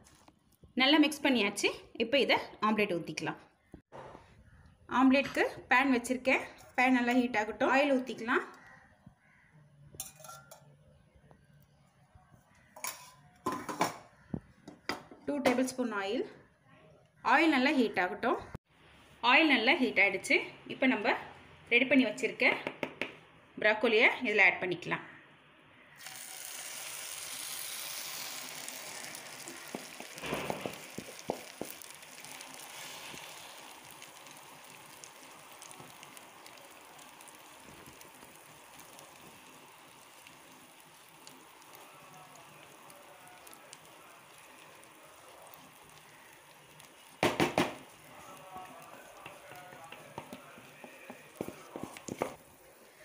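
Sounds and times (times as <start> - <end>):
omelette sizzling in hot oil: 26.0 - 53.0.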